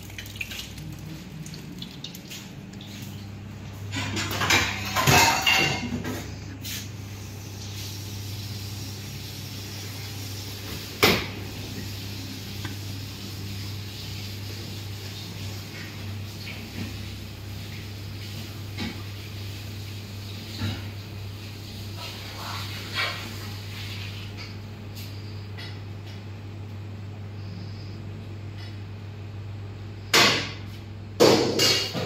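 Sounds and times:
steady low hum: 0.0 - 19.3, 20.5 - 32.0
kitchen utensils and dishes clattering: 3.7 - 6.8, 30.1 - 32.0.

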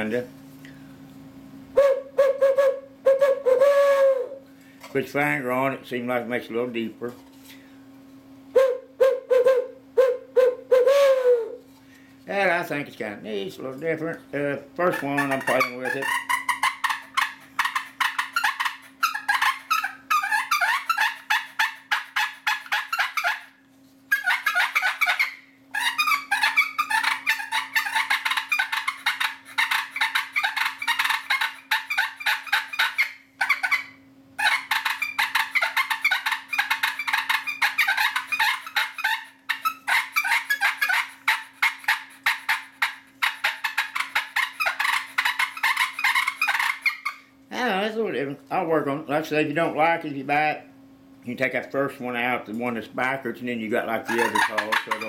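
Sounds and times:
turkey call purring clucks: 14.9 - 47.3, 54.1 - 55.0.

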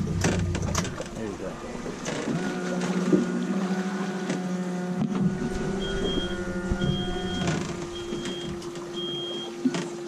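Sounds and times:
outboard motors idling: 0.0 - 10.0.

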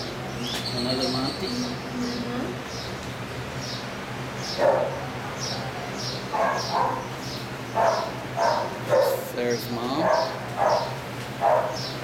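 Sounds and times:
dogs barking: 4.5 - 5.2, 6.3 - 9.3, 9.9 - 12.0.

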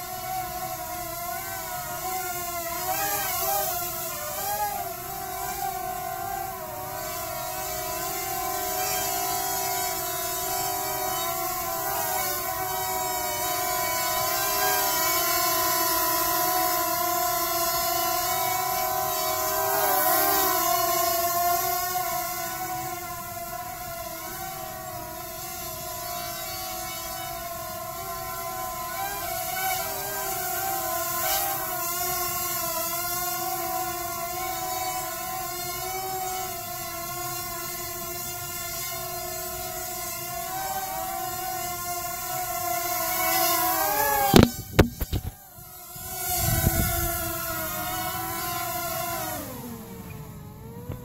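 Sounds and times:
drone motors whining: 0.0 - 51.0
drone propellers whining: 43.0 - 51.0.

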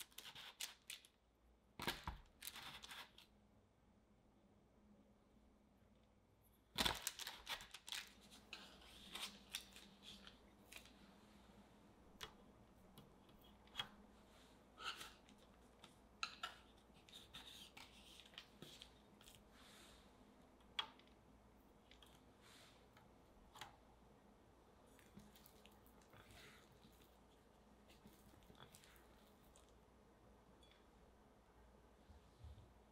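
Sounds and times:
parchment paper rustling: 6.8 - 11.1.

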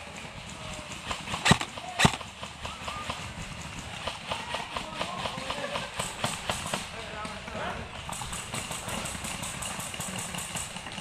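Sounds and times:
airsoft rifle shots: 1.2 - 2.3.

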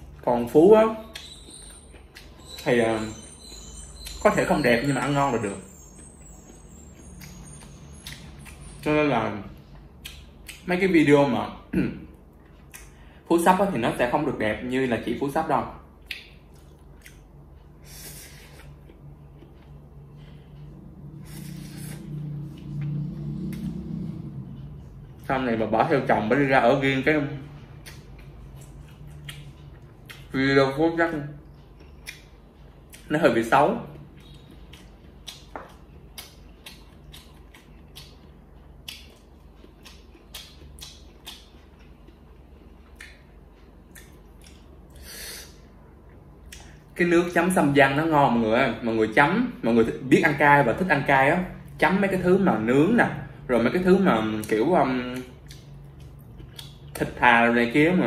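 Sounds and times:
low steady hum: 0.0 - 58.0
hissy mouth noise: 44.9 - 45.6.

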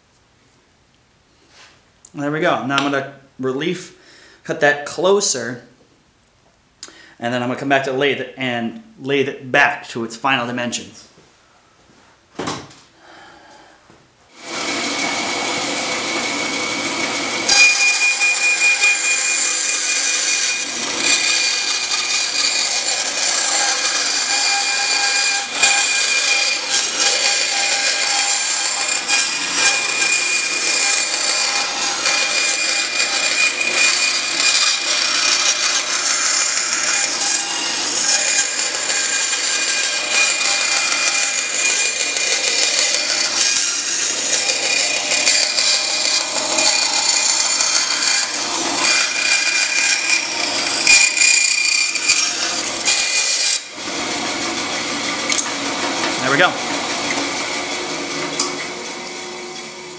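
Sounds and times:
bandsaw running: 14.3 - 59.9
bandsaw cutting acrylic sheet: 14.4 - 59.9.

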